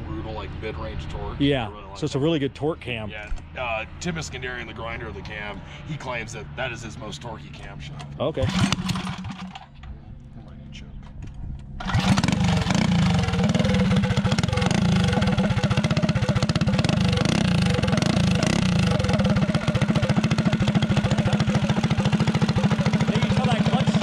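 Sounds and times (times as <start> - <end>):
mini bike engine running: 8.4 - 9.7, 11.8 - 24.0
pull starter: 8.4 - 9.8, 11.8 - 24.0.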